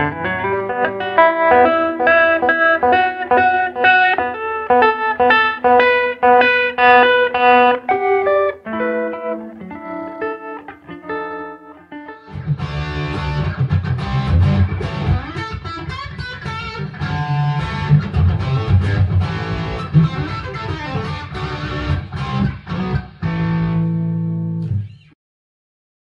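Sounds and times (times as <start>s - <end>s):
electric guitar music: 0.0s - 25.2s.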